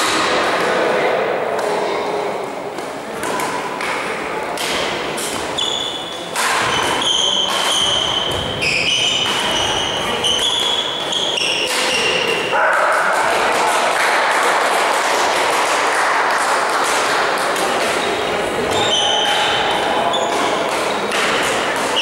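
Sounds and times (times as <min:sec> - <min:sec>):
echoing voices: 0:00.0 - 0:22.0
shoes squeaking on court floor: 0:05.2 - 0:12.6, 0:17.9 - 0:22.0.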